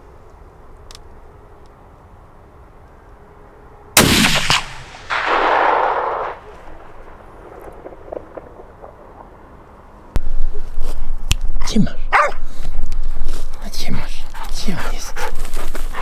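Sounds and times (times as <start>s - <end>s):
rifle shot: 4.0s - 9.4s
dull echo of gunshot: 4.0s - 9.8s.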